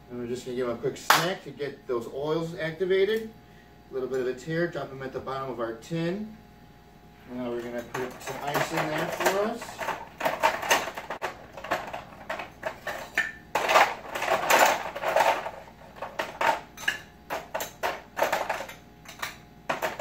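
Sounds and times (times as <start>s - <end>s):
ice cubes clattering in metal tin: 7.6s - 20.0s.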